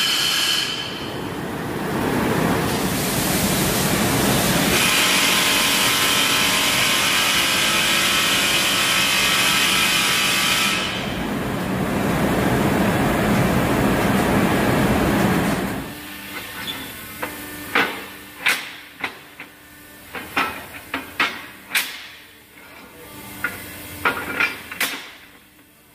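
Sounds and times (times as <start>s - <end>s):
hissing machinery noise: 0.0s - 22.0s.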